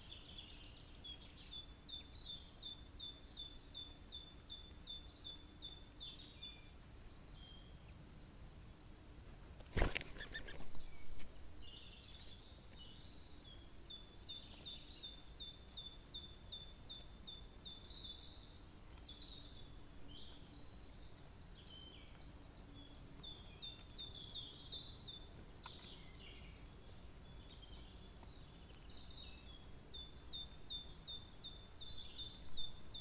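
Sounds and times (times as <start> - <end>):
songbird singing: 0.0 - 33.0.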